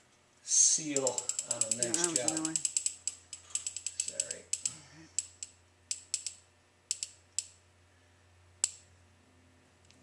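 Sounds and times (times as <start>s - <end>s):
caulking gun ratchet clicking: 0.9s - 7.6s.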